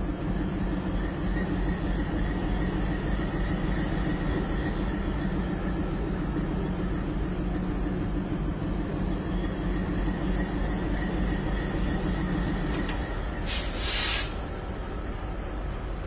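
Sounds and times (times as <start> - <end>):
diesel locomotive engine drone: 0.0 - 16.0
short loud hiss: 13.4 - 14.4.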